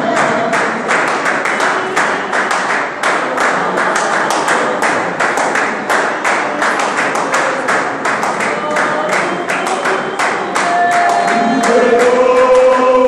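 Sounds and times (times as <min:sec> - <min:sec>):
choir clapping hands: 0:00.0 - 0:13.0.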